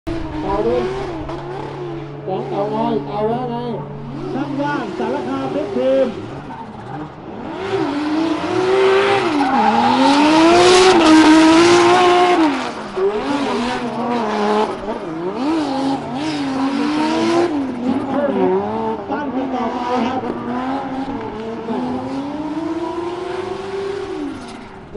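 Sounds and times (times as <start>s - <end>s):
car engine revving hard: 0.1s - 24.9s
tyres spinning and squealing: 3.8s - 18.9s.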